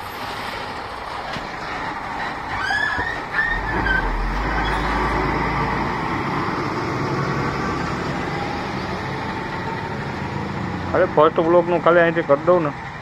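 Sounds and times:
truck diesel engine rumbling: 0:00.0 - 0:13.0
high squeals: 0:02.2 - 0:06.0.

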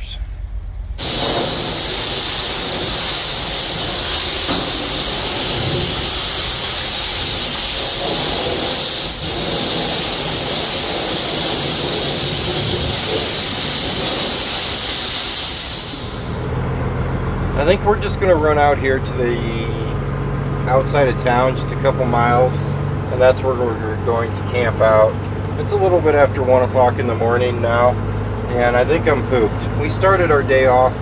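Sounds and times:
high-pressure water spraying: 0:01.0 - 0:16.5.

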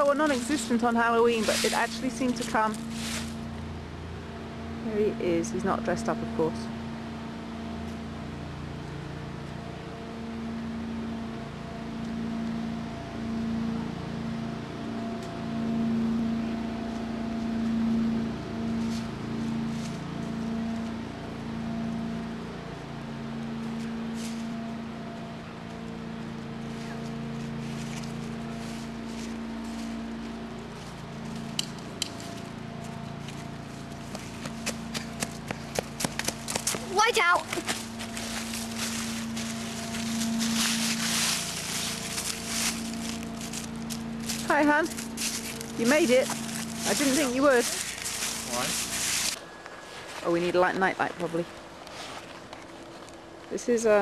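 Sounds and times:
footsteps crunching on dry leaves: 0:00.0 - 0:03.7, 0:17.4 - 0:20.8, 0:23.5 - 0:25.0, 0:25.8 - 0:53.4
low mechanical hum: 0:00.0 - 0:54.0.

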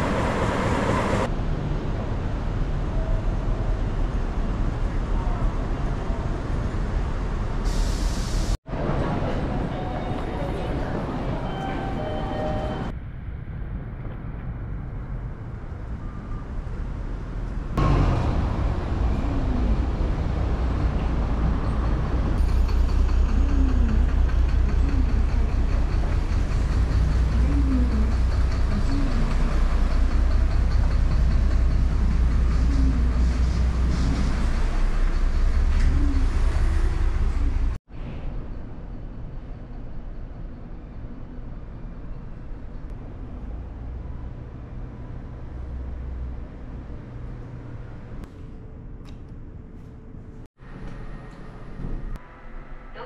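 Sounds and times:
low rumble of passing traffic: 0:12.9 - 0:53.0.

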